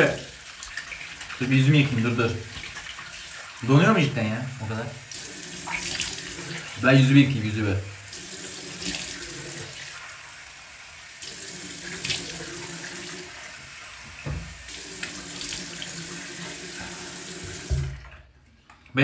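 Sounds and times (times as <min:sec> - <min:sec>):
water splashing on face: 0:00.0 - 0:03.9, 0:05.1 - 0:06.9, 0:11.2 - 0:13.2
sink tap running: 0:00.0 - 0:18.2.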